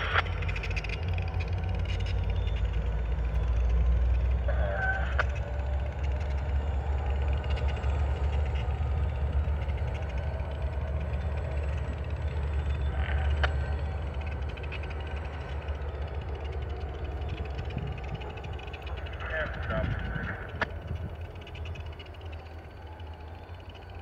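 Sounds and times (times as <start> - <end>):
diesel locomotives idling: 0.0 - 24.0
sharp tick: 20.5 - 20.8.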